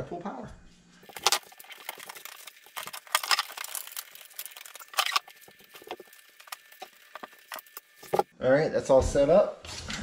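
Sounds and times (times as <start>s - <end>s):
cables rustling and scraping: 1.0s - 8.3s.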